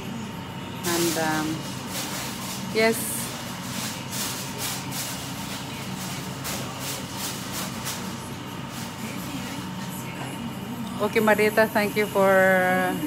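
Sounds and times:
aluminium foil crinkling: 0:00.8 - 0:09.9.

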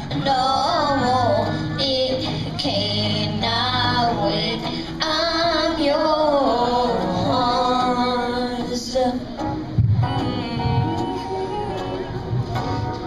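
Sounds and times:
child singing into a microphone: 0:00.0 - 0:09.4
recorded backing music: 0:00.0 - 0:13.0.

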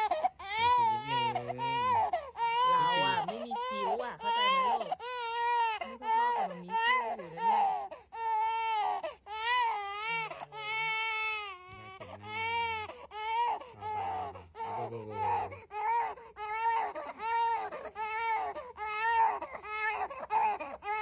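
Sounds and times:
baby crying: 0:00.0 - 0:21.0.

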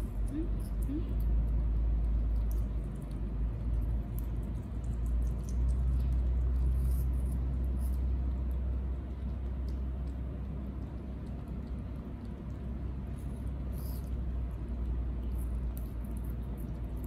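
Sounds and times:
animals crunching food: 0:00.0 - 0:17.0.

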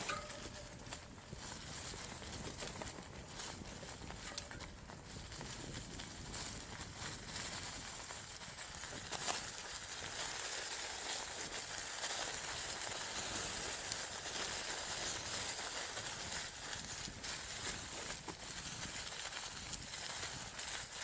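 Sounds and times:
bike knocking over bumps: 0:00.0 - 0:01.2
bike tyres crackling on leaves: 0:00.0 - 0:21.0.

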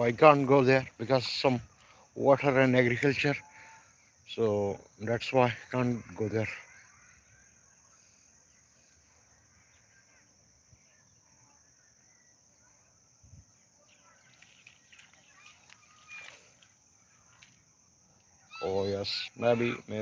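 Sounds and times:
steady high hiss: 0:00.0 - 0:03.4, 0:07.8 - 0:20.0
faint rustles and clicks: 0:14.1 - 0:17.6.

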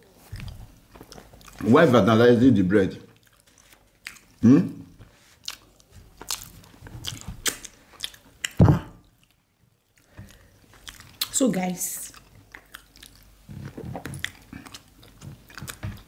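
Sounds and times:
people chewing food: 0:00.0 - 0:16.0
wet mouth clicks and smacks: 0:06.2 - 0:09.4.

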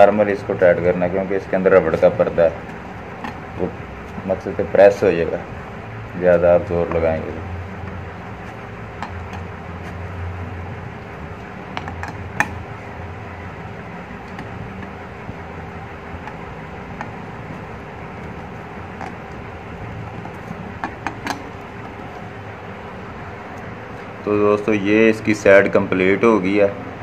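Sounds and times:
steady low hum: 0:00.0 - 0:27.0.

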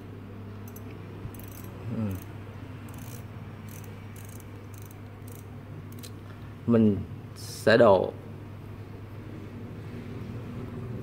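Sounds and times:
fishing reel chirring tick: 0:00.7 - 0:02.3, 0:02.9 - 0:06.1.

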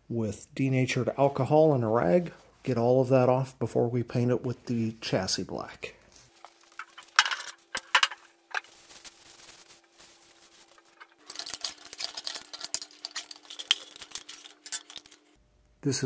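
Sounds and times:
paint cans clinking: 0:06.5 - 0:08.8, 0:10.2 - 0:15.4.

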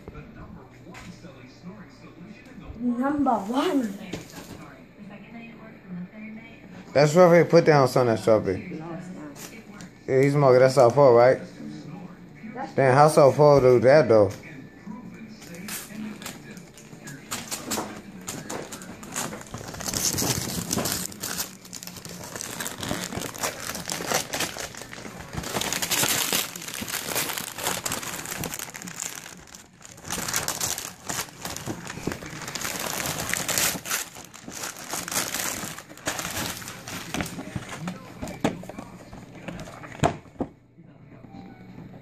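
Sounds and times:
wrapping paper crackling: 0:15.4 - 0:40.2.

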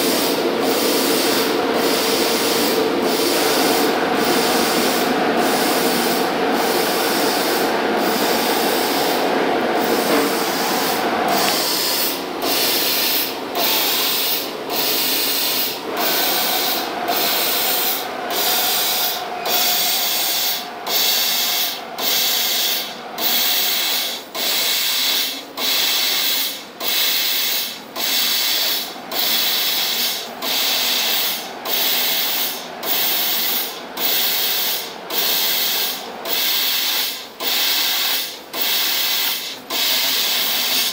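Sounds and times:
machine hum: 0:00.0 - 0:26.0
laser cutter gas jet hissing: 0:00.0 - 0:40.9.

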